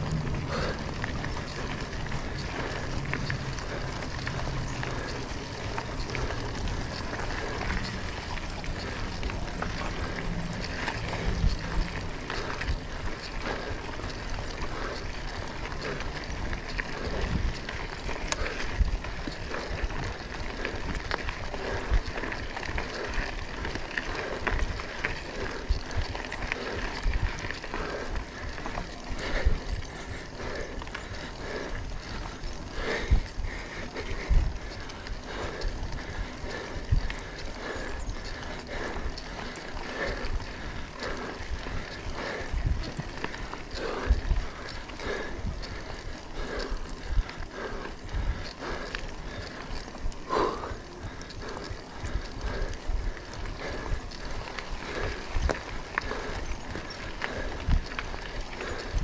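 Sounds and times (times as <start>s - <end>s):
low rumble: 0.0s - 18.1s
mountain bike rattling: 0.0s - 59.0s.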